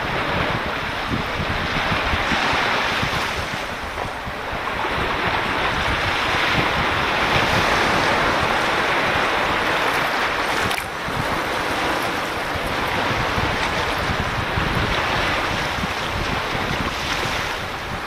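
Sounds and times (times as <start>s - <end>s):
waves washing on shore: 0.0s - 18.0s
wind buffeting microphone: 0.0s - 18.0s.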